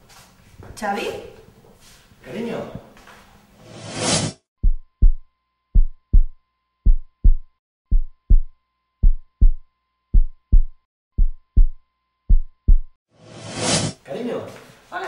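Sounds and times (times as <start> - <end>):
heartbeat thumps: 4.6 - 5.2, 5.8 - 13.0.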